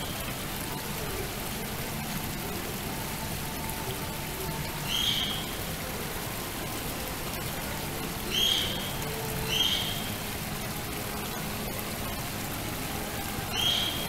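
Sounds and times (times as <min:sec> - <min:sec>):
waterfall splashing into pond: 0:00.0 - 0:14.0.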